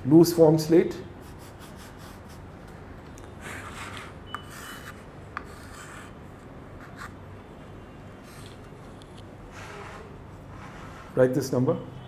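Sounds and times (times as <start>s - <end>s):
chalk scratching on slate: 1.2s - 2.5s, 3.4s - 6.2s
chalk squeak: 3.4s - 6.2s, 9.5s - 11.4s.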